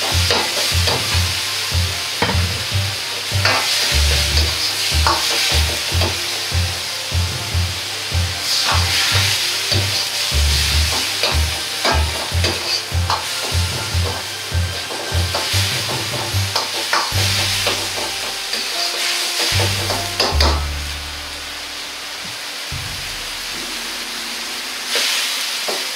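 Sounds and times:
food sizzling in a wok: 0:00.0 - 0:25.9
low rumble: 0:19.6 - 0:24.9.

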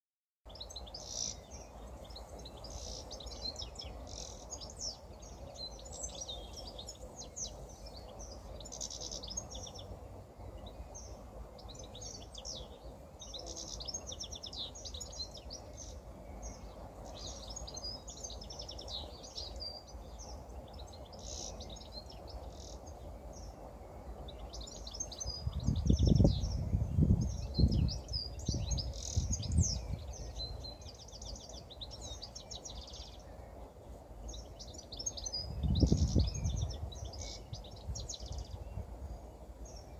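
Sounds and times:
goldfinch singing: 0:00.5 - 0:33.6, 0:34.2 - 0:39.9.

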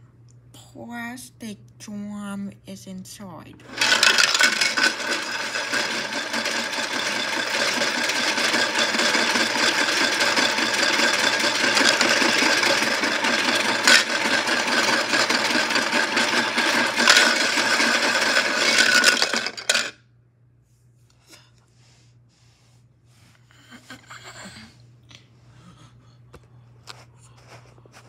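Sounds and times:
toy washing machine whirring: 0:03.6 - 0:20.0.

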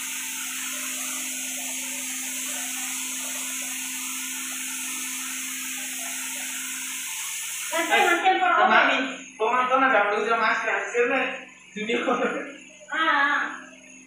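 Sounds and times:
spray gun hissing: 0:00.0 - 0:08.4.

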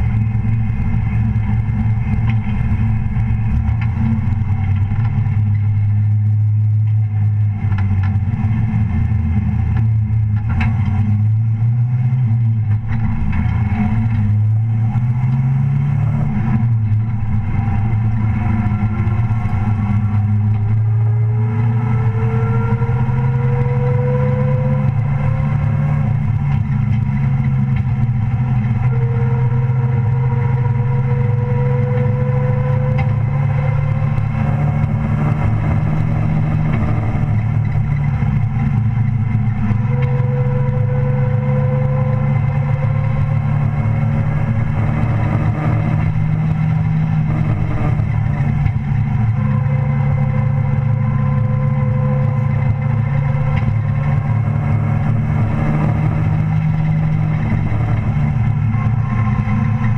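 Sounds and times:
race truck engine running: 0:00.0 - 0:59.9.

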